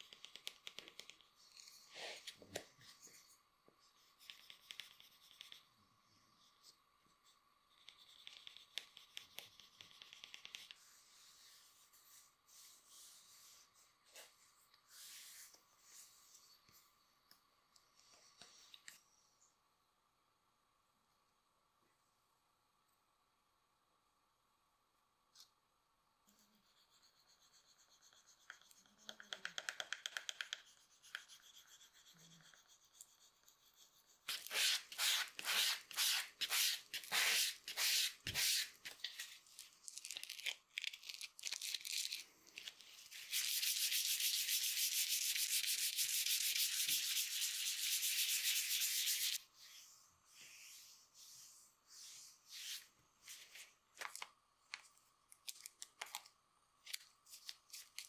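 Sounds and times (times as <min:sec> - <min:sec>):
sanding leather by hand: 0:43.2 - 0:49.4.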